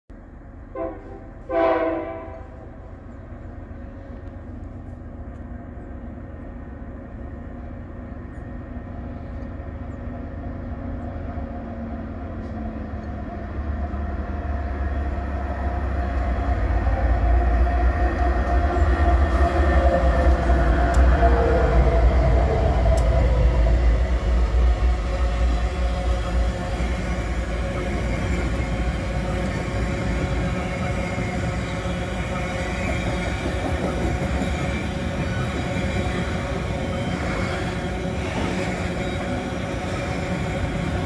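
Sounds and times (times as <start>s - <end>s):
locomotive engine rumble: 0.1s - 41.0s
locomotive horn: 0.7s - 2.9s.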